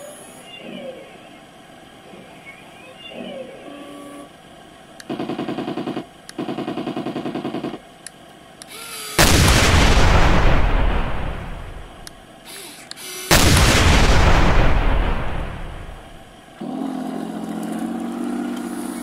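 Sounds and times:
toy machine-gun effect bursts: 5.0s - 7.8s, 8.7s - 9.8s, 12.5s - 13.8s
toy cannon shot effect: 9.0s - 11.8s, 13.0s - 16.0s.

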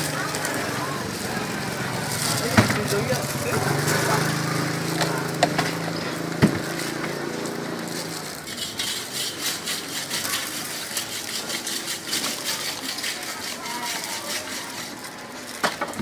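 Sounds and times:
engine hum: 0.0s - 8.5s.

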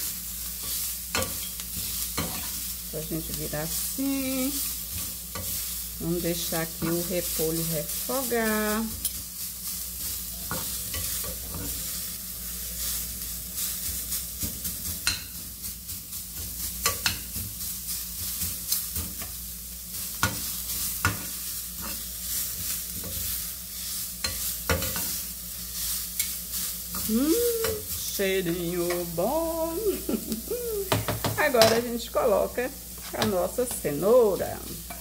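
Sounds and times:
cabbage sizzling in a frying pan: 0.0s - 35.0s
metal spoons scraping a pan: 0.5s - 11.9s, 16.4s - 17.5s, 18.2s - 29.2s.

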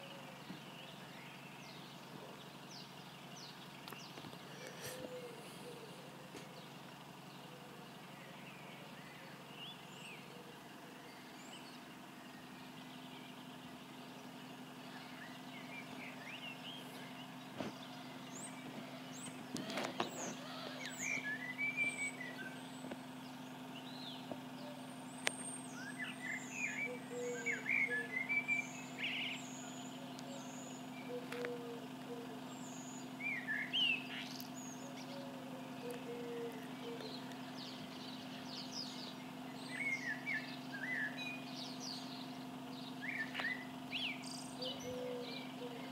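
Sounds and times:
distant bus engine idling: 0.0s - 45.9s
small birds chirping: 0.0s - 45.9s.

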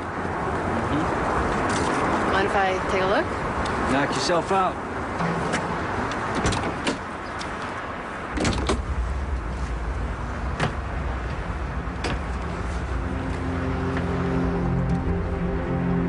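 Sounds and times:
traffic rumble: 0.0s - 16.0s
music: 13.0s - 16.0s.

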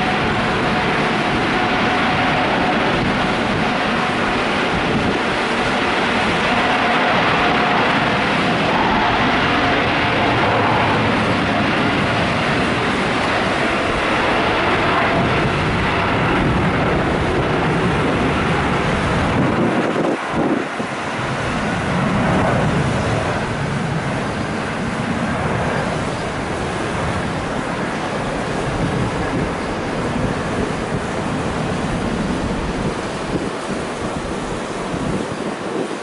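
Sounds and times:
jet engines at takeoff thrust: 0.0s - 36.0s.

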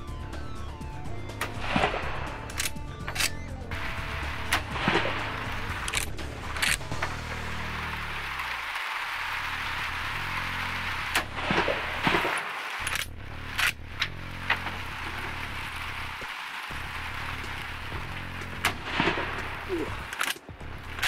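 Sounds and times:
rifle bolt clacking: 2.5s - 3.4s, 5.8s - 6.8s, 12.8s - 14.1s, 20.1s - 20.4s.

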